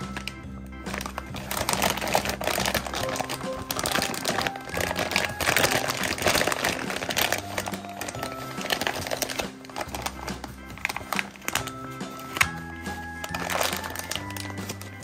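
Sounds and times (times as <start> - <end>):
background music: 0.0 - 15.0
plastic bag crinkling: 0.0 - 15.0.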